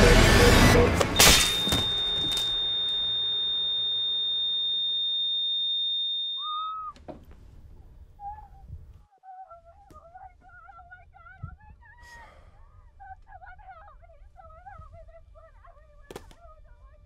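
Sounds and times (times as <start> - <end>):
steady high-pitched tone: 0.0 - 6.9
high wavering call: 1.2 - 7.0.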